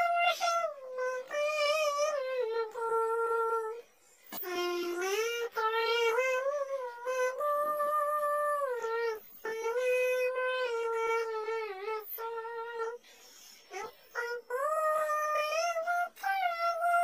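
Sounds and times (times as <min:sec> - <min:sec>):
synthetic childlike voice singing: 0:00.0 - 0:13.0, 0:13.7 - 0:17.0.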